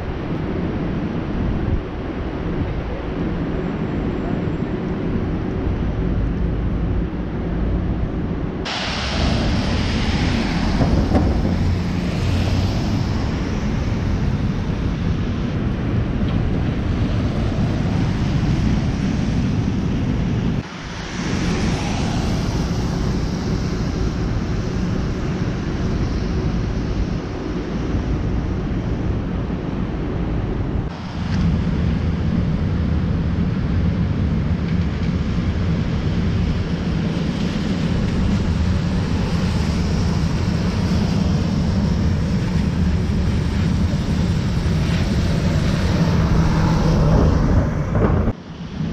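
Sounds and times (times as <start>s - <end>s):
traffic rumble: 0.0s - 48.9s
wind hiss on microphone: 0.0s - 48.9s.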